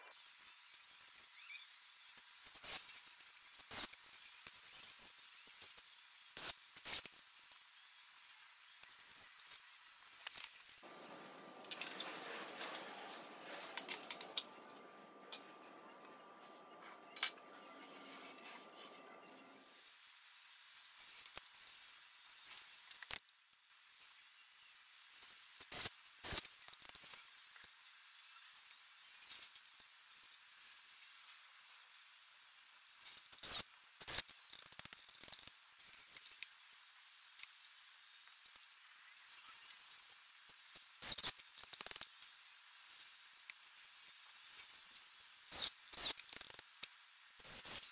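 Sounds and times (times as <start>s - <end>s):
faint hiss: 10.8s - 15.2s.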